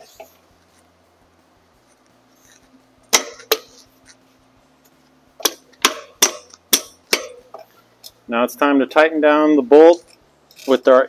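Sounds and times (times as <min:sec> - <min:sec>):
metallic taps on axle: 0:04.8 - 0:08.2.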